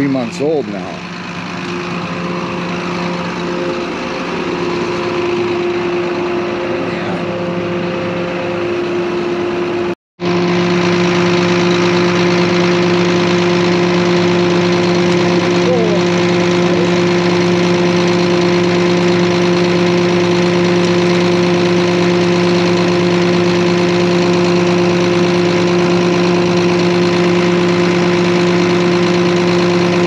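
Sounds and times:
tractor engine idling: 0.0s - 30.0s.

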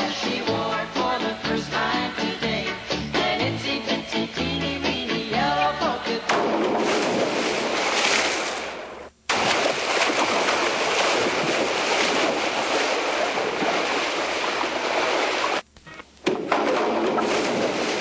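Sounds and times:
loud rushing water noise: 9.9s - 15.6s.

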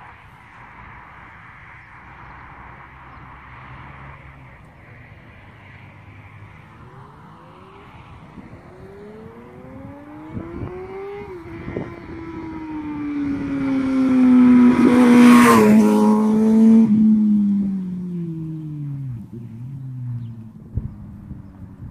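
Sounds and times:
motorcycle accelerating past: 6.6s - 21.6s.

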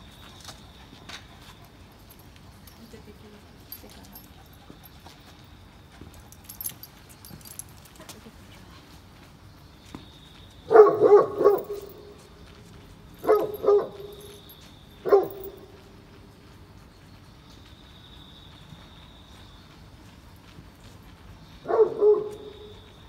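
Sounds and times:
dog barking: 10.7s - 12.0s, 13.2s - 14.3s, 15.0s - 15.7s, 21.6s - 22.7s.

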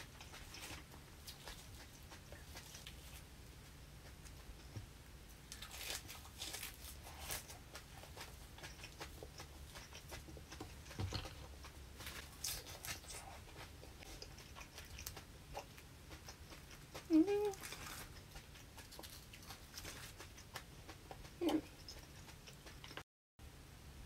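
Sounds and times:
close chewing: 0.0s - 23.0s
herb leaves rustling and snapping: 5.5s - 7.6s.

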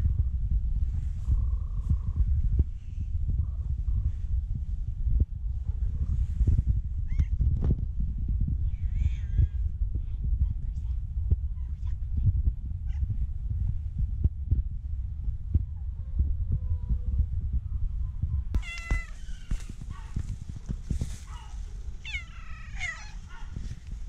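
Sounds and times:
cats meowing: 18.6s - 20.2s, 21.2s - 23.5s.

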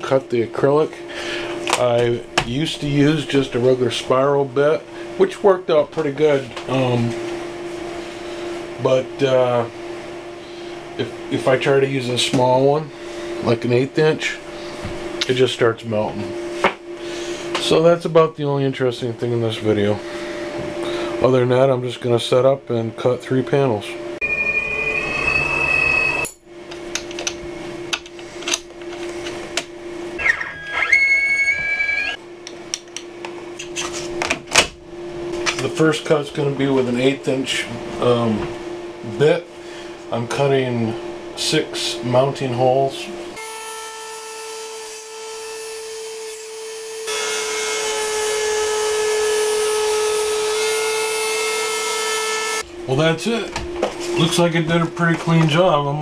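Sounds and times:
high whine: 0.0s - 43.4s, 52.6s - 56.0s
machine hum: 0.0s - 56.0s
cnc router spindle whine: 18.9s - 29.2s, 30.0s - 32.5s, 43.3s - 56.0s.

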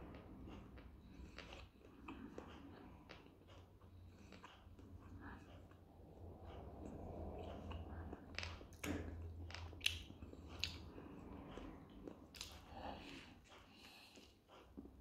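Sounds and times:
man chewing food: 0.0s - 15.0s
wet mouth clicks: 7.5s - 13.2s.

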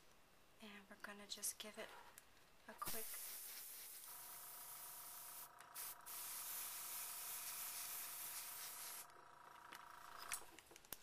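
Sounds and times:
airbrush hissing: 2.8s - 9.1s
steady whine: 4.0s - 10.6s.

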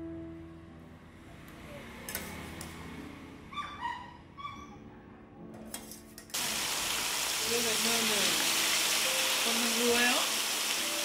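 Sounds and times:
fish frying in hot oil: 6.4s - 11.0s.

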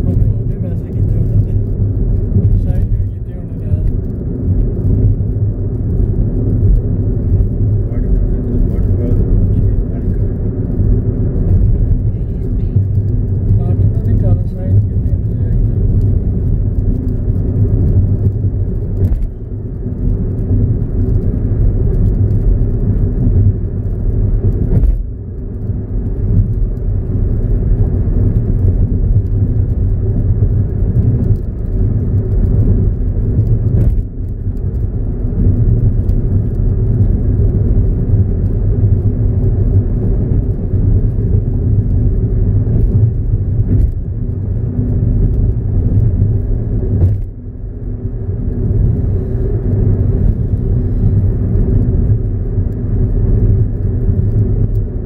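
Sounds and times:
car engine and road noise: 0.0s - 55.0s.

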